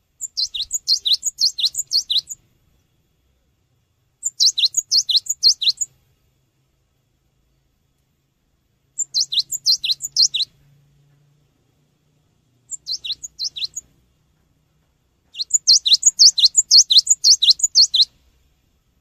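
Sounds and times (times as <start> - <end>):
bird singing whistled notes: 0.2 - 2.4, 4.2 - 6.0, 8.9 - 10.6, 12.6 - 14.0, 15.3 - 18.2.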